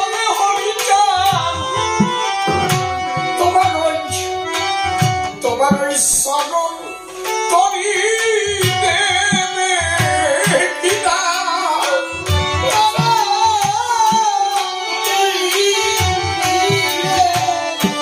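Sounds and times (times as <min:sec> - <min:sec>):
man singing: 0:00.0 - 0:04.5, 0:05.4 - 0:18.0
sharp percussion clicks: 0:00.8 - 0:06.1
hand drum strokes: 0:01.5 - 0:03.9.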